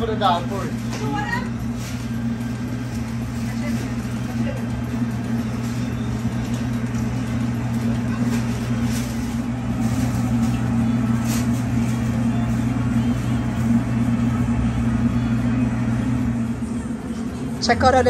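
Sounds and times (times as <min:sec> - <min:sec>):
kitchen machine hum: 0:00.0 - 0:18.0
rustling in steel bowl: 0:06.5 - 0:13.3.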